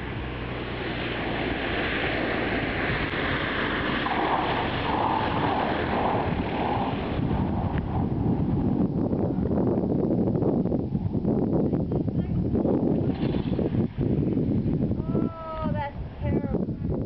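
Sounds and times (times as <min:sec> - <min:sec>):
propeller plane engine: 0:00.0 - 0:14.8
wind noise on microphone: 0:00.0 - 0:17.0.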